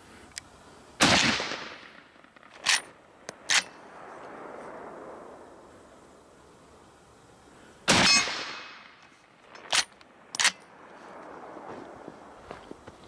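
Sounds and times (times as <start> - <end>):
rifle shot: 1.0 - 5.3, 7.9 - 10.6
rifle lever metallic clacks: 2.5 - 3.7, 9.5 - 10.6.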